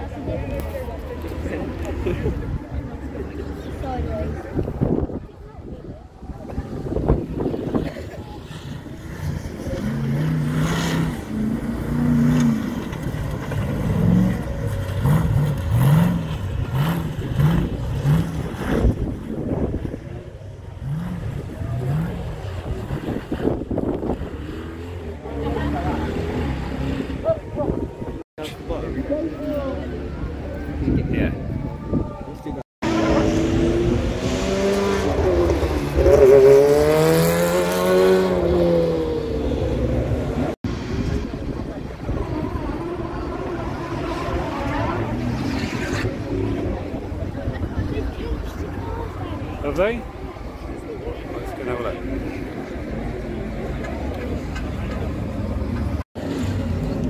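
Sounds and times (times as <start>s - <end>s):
race car engine passing: 6.6s - 28.2s, 32.8s - 57.0s
buggy engine revving in bursts: 9.0s - 19.2s, 32.8s - 40.6s.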